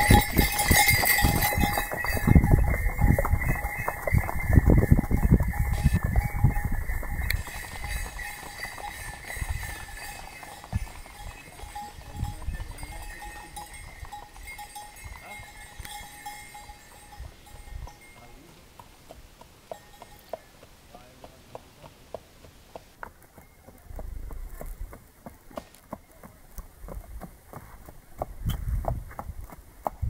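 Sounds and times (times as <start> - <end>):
hooves clopping on dirt: 0.0 - 30.0.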